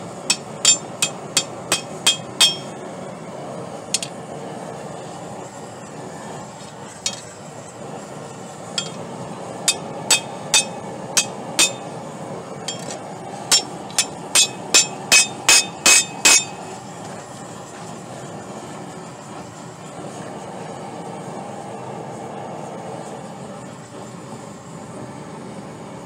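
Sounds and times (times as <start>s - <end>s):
hammer striking metal on anvil: 0.3s - 2.8s, 4.0s - 4.2s, 7.1s - 7.3s, 8.8s - 9.0s, 9.7s - 12.0s, 12.7s - 16.6s.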